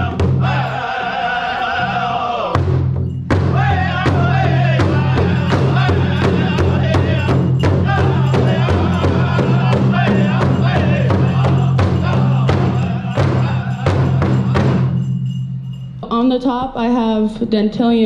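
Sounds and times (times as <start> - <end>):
large hand drum beating: 0.0 - 0.7, 2.5 - 15.6
men singing together: 0.0 - 2.7, 3.4 - 15.0.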